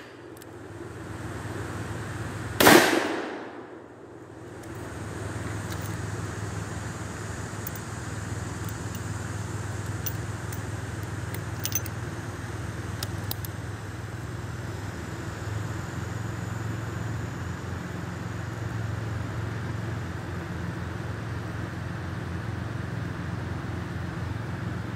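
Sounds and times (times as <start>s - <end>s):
revolver metallic clicks: 0.0s - 0.6s, 4.4s - 6.6s, 7.4s - 12.2s, 12.9s - 13.7s.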